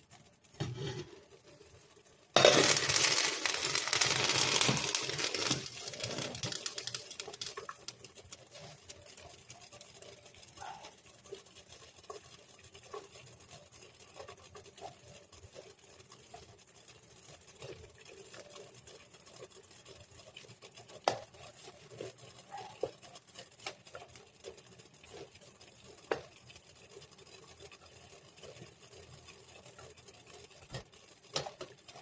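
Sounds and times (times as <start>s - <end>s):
chopsticks tapping and scraping a pot: 0.5s - 10.2s, 11.3s - 16.4s, 20.4s - 27.0s, 29.2s - 32.0s.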